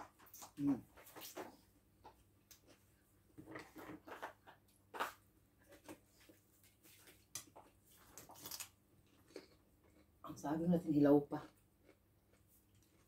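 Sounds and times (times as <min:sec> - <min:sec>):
chewing: 0:07.4 - 0:10.3, 0:11.4 - 0:13.0.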